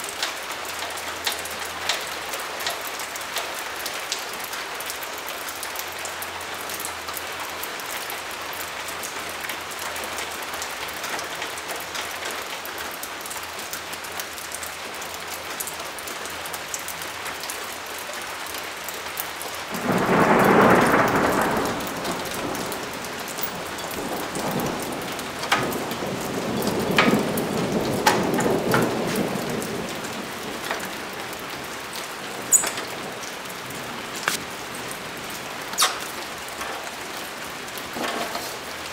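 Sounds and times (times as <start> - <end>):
steady rain falling: 0.0 - 38.9
thunder rumbling: 19.6 - 35.5.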